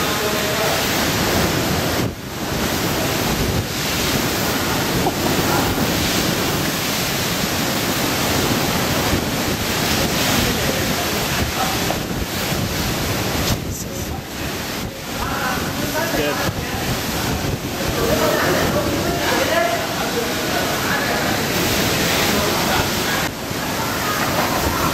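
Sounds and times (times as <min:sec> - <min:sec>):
driving rain: 0:00.0 - 0:24.9
strong wind rushing: 0:00.6 - 0:20.0.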